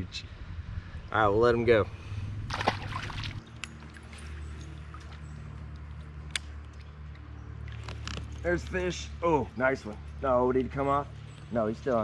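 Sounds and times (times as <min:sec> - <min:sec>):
water lapping and sloshing: 0:02.4 - 0:08.3.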